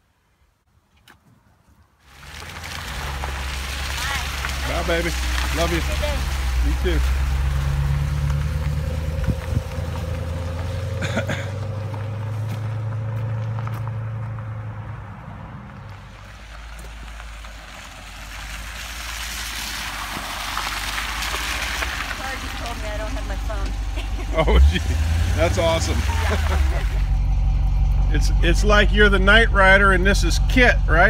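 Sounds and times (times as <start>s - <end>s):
tyres hissing on wet gravel: 2.0s - 13.8s, 15.9s - 27.2s
car engine rumble: 2.0s - 31.0s.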